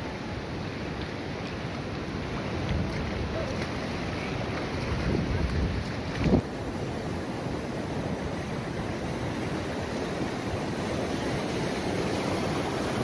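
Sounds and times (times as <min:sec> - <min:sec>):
sea surf washing: 0:00.0 - 0:13.0
wind buffeting microphone: 0:02.5 - 0:06.5.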